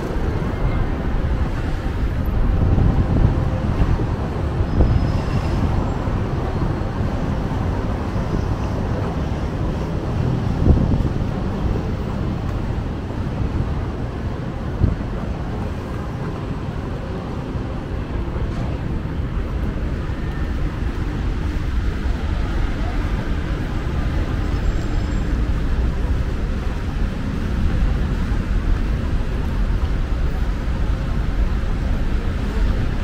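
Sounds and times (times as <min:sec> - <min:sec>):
city road traffic rumble: 0:00.0 - 0:33.0.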